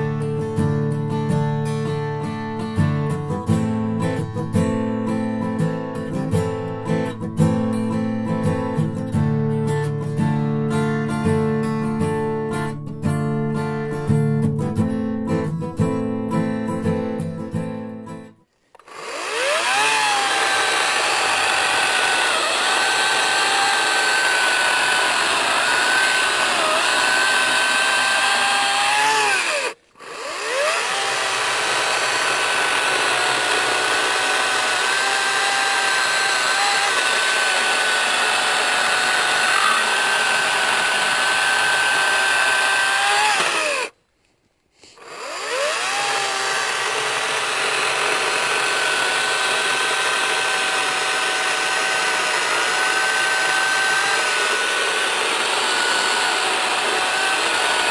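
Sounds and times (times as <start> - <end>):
battery chainsaw whining: 18.7 - 44.0, 44.8 - 57.9.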